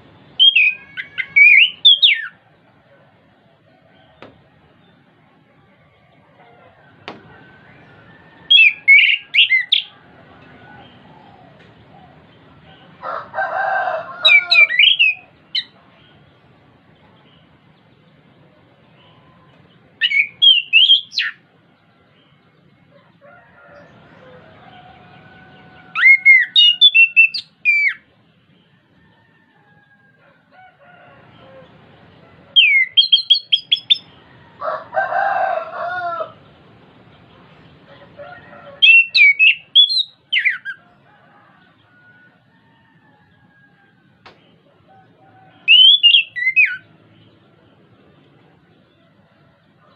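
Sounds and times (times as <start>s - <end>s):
thrush singing whistled notes: 0.3s - 2.4s, 7.6s - 9.9s, 14.2s - 15.8s, 20.0s - 21.4s, 25.9s - 28.1s, 32.6s - 34.2s, 38.8s - 40.8s, 45.6s - 46.9s
rooster crowing: 0.4s - 4.9s, 5.6s - 15.7s, 22.0s - 28.0s, 28.6s - 36.5s, 37.8s - 47.3s, 48.8s - 49.9s.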